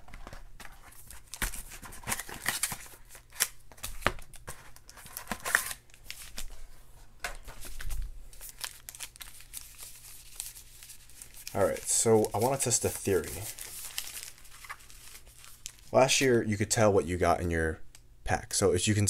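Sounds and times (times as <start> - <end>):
foil packs crinkling: 0.1 - 6.6, 7.5 - 16.1.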